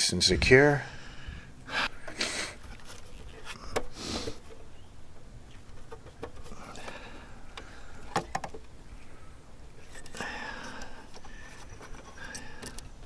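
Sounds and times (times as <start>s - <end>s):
soft rustling: 0.9s - 8.0s
plastic housing clicks: 2.0s - 6.9s, 7.5s - 8.7s.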